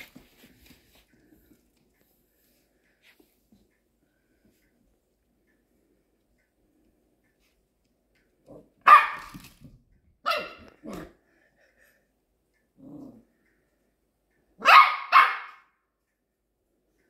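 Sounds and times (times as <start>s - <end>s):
small puppy barking: 8.6s - 9.4s, 10.2s - 11.2s, 14.6s - 15.8s.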